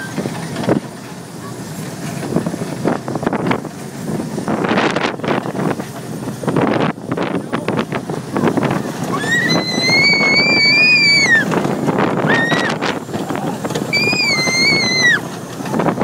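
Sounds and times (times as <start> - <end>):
roller coaster car rumble and rattle: 0.0 - 16.0
wind on microphone: 2.2 - 16.0
child squealing: 9.1 - 11.5, 12.3 - 12.8, 13.9 - 15.2.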